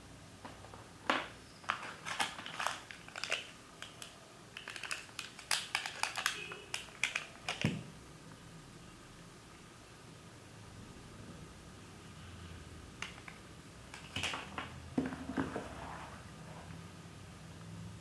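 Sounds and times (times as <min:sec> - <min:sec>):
plastic packaging crinkling: 0:01.7 - 0:07.7.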